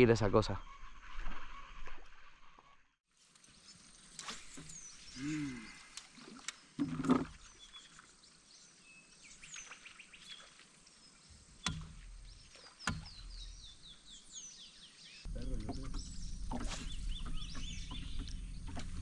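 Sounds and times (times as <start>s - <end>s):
birds chirping: 3.5s - 19.0s
sharp knocks: 11.6s - 12.0s.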